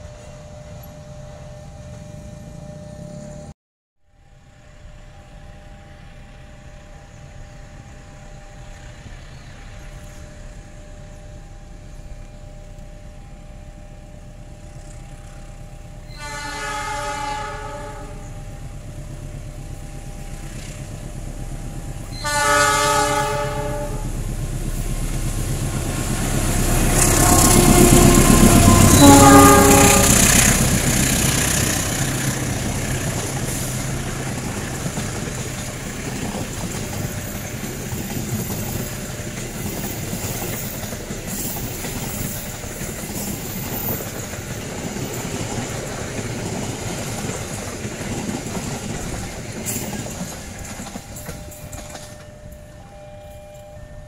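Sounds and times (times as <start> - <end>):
train rumbling with rail clatter: 4.2 - 54.0
locomotive horn blasts: 16.1 - 18.4, 22.1 - 24.1, 26.7 - 30.6.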